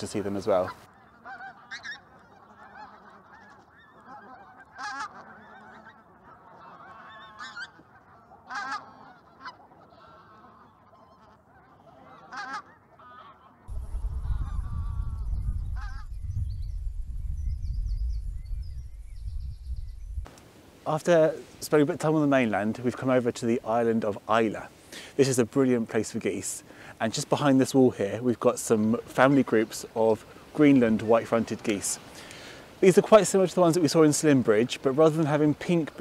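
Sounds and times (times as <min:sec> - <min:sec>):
geese calling: 0:00.0 - 0:16.3
wind buffeting microphone: 0:13.7 - 0:20.3.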